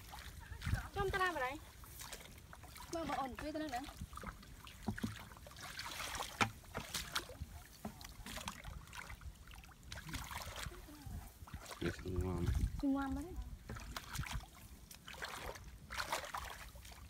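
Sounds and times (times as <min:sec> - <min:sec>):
muddy water sloshing and splashing: 0:00.0 - 0:17.0.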